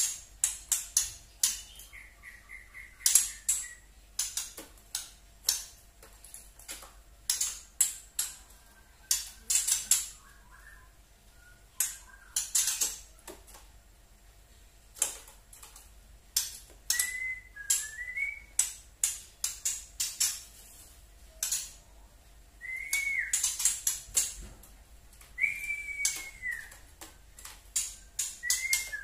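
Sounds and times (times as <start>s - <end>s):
bird whistles: 16.9s - 18.5s, 22.6s - 23.5s, 25.4s - 26.7s, 28.4s - 29.0s
bird clicking notes: 25.4s - 29.0s.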